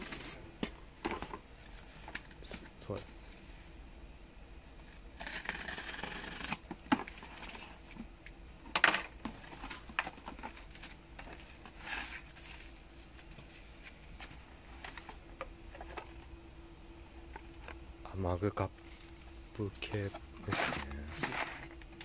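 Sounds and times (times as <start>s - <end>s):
cardboard and bubble wrap rustling: 0.0s - 3.4s, 4.9s - 8.1s, 9.0s - 16.2s, 18.8s - 22.0s
tape ripping off cardboard: 5.2s - 7.3s.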